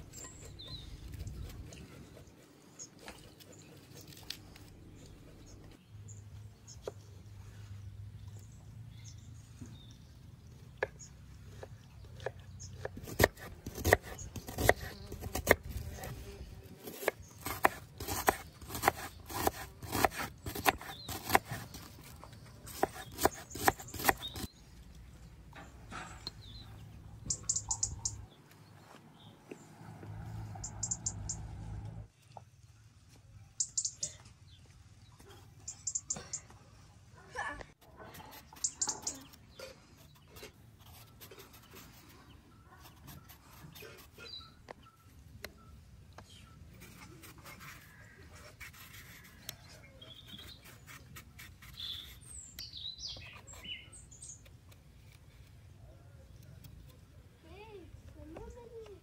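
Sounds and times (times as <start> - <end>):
bird chirping: 0.0 - 16.1, 17.1 - 29.6, 30.5 - 31.7, 33.4 - 36.6, 38.5 - 40.5, 41.4 - 47.2, 48.8 - 55.2
knife slicing onion on cutting board: 12.2 - 16.2, 16.8 - 22.0, 22.7 - 24.5.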